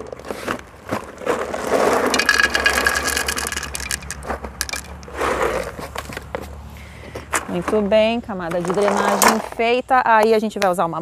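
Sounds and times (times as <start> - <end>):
clay pebbles rattling into pot: 1.9 - 6.3.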